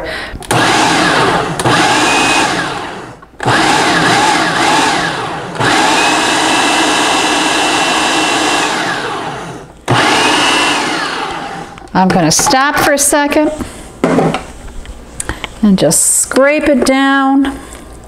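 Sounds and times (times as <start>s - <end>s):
food processor motor whirring: 0.5s - 11.9s.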